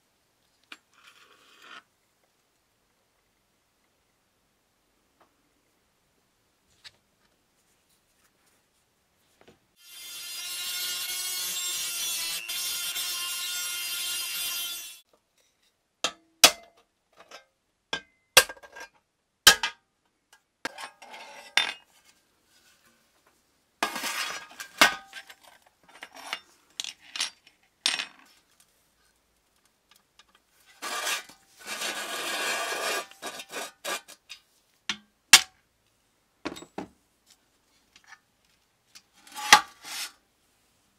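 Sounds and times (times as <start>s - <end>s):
rotary tool grinding metal: 9.8s - 15.0s, 30.8s - 34.1s.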